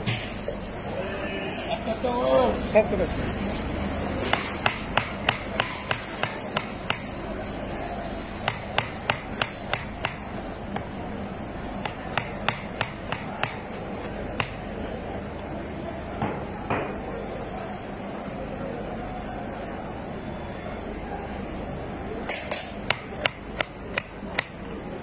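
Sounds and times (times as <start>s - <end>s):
knife chopping on cutting board: 8.4s - 10.2s.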